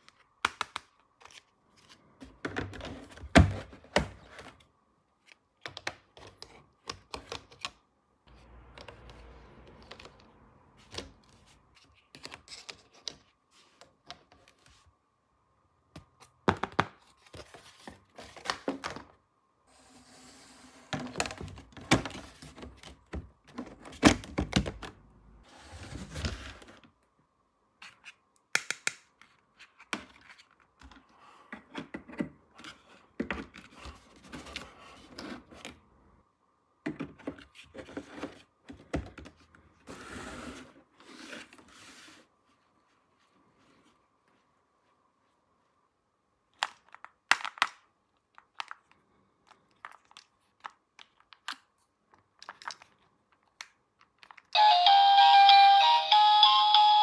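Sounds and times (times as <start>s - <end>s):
rustling and scraping: 39.8s - 45.4s.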